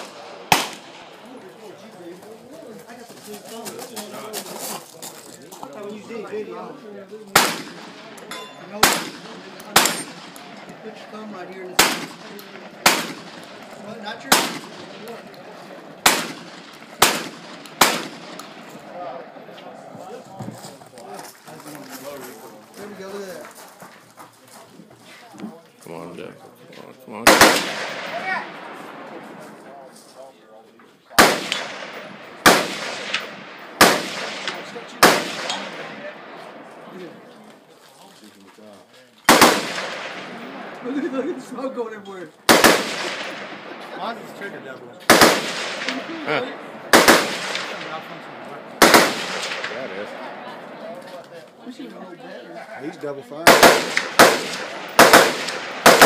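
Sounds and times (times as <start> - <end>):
gunshots with echo: 0.0 - 1.3, 7.3 - 19.2, 27.2 - 29.8, 31.2 - 36.8, 39.3 - 40.9, 42.4 - 50.9, 53.4 - 56.0
rifle shots: 0.0 - 1.3, 7.3 - 8.2, 8.8 - 10.8, 11.7 - 15.2, 15.9 - 18.7, 27.2 - 29.1, 31.2 - 36.8, 39.3 - 40.9, 42.5 - 44.0, 45.1 - 50.4, 53.4 - 56.0.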